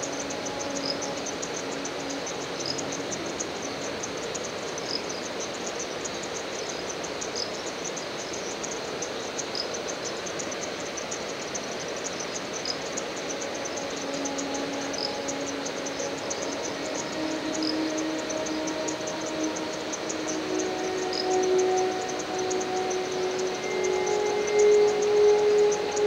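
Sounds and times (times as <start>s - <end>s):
short high insect note: 0.0s - 5.0s, 12.4s - 26.0s
insects chirping: 0.0s - 26.0s
steady hiss: 0.0s - 26.0s.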